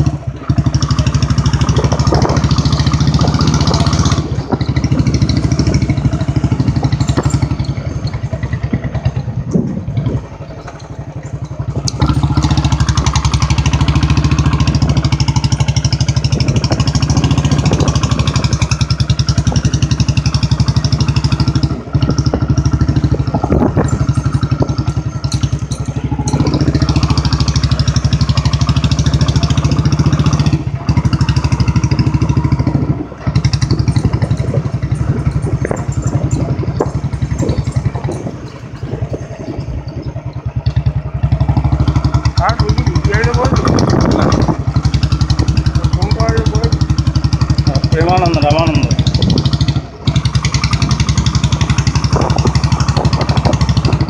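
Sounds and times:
motorcycle engine running: 0.0s - 54.0s
knocks from rough track: 49.1s - 54.0s.

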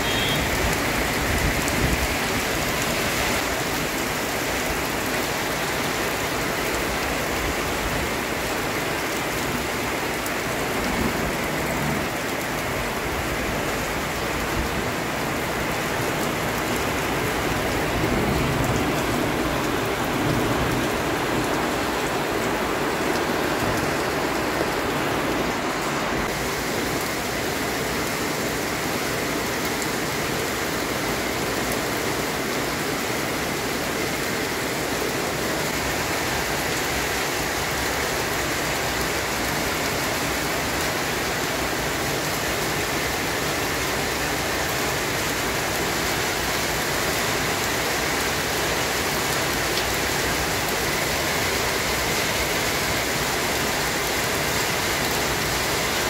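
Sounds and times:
heavy rain hiss: 0.0s - 56.0s.

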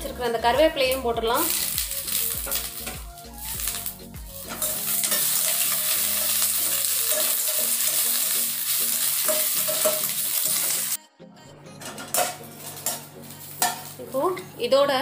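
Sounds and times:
vegetables sizzling in hot oil: 0.3s - 11.0s, 12.2s - 14.4s
ladle scraping and clinking pan: 4.4s - 8.2s, 8.9s - 10.9s, 11.7s - 14.0s.

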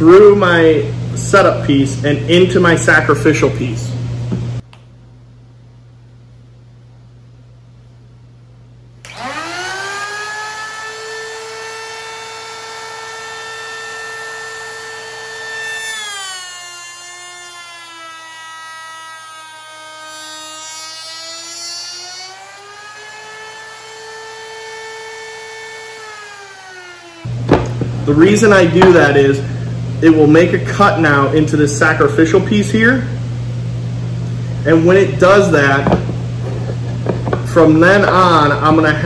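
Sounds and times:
router whining: 9.0s - 29.0s.

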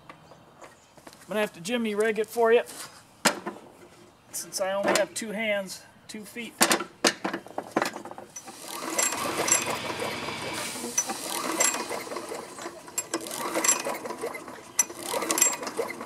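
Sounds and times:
mower engine cranking: 7.8s - 16.0s.

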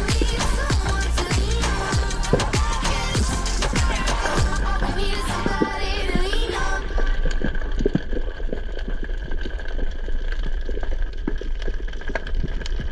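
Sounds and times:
underwater low rumble: 0.0s - 12.9s
small clicks and crackles: 6.8s - 12.9s.

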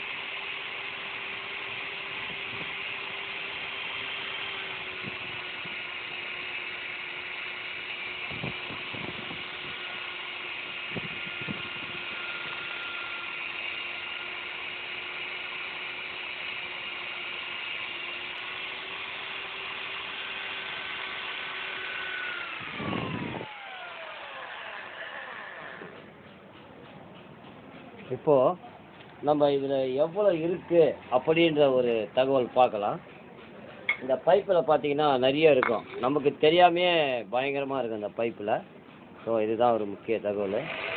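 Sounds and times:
electric hand drill whining: 0.0s - 26.1s, 40.4s - 40.9s.

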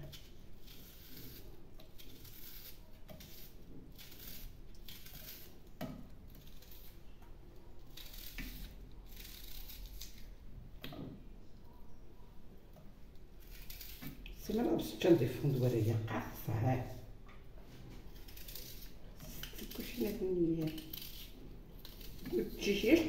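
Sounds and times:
knife slicing onion: 0.0s - 7.0s, 7.9s - 10.2s, 18.0s - 23.0s.

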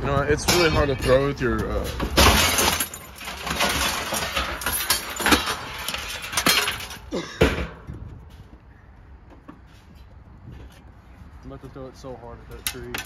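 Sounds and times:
scrap metal clattering in bucket: 0.4s - 7.7s.

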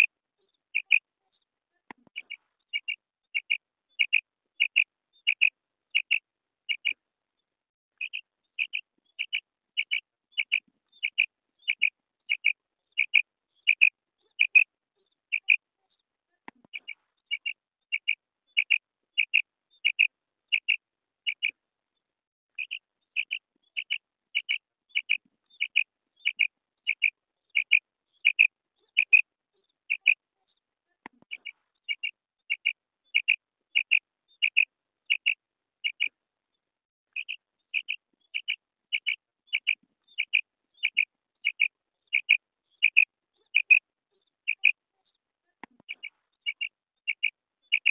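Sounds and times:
quail calling: 0.8s - 1.0s, 2.2s - 7.0s, 8.0s - 14.6s, 15.3s - 15.6s, 16.8s - 21.5s, 22.6s - 29.2s, 29.9s - 30.2s, 31.3s - 36.1s, 37.1s - 43.8s, 44.5s - 44.8s, 45.8s - 47.9s.

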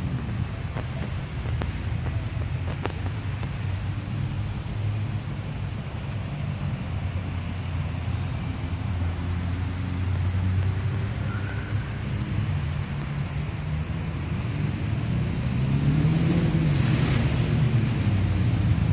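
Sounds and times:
city road traffic rumble: 0.0s - 18.9s.

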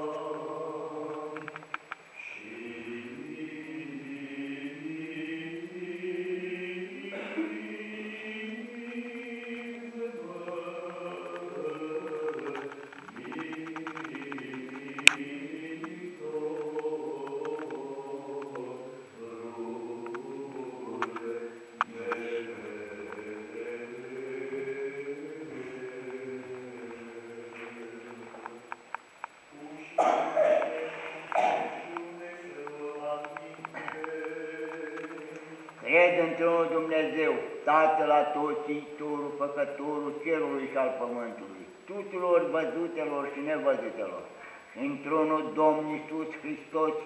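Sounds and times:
voices chanting long notes: 0.0s - 28.8s, 29.5s - 40.0s
sharp click: 12.2s - 15.2s.

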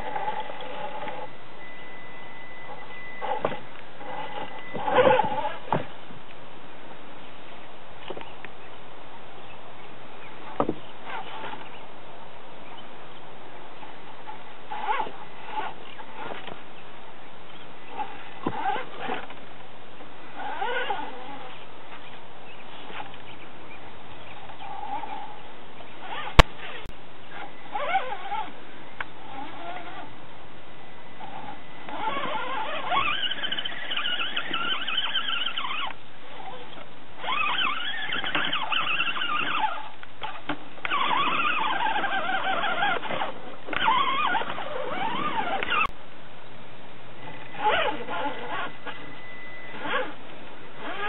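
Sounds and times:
electric motor whining: 31.2s - 45.9s, 47.2s - 51.0s.

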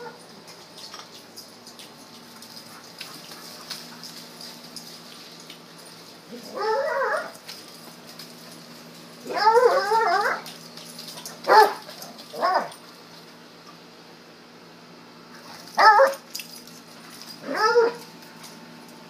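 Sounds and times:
dog whining yowls: 6.3s - 7.4s, 9.2s - 10.5s, 17.4s - 18.0s.

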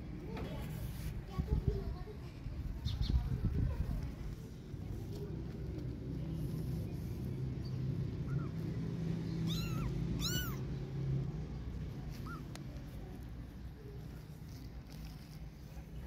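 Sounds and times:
kitten meowing: 9.4s - 10.7s, 12.1s - 12.6s.

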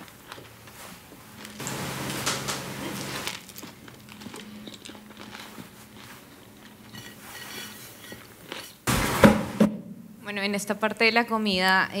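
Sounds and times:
crunching and chewing sandwich: 0.0s - 1.6s, 3.0s - 8.8s.

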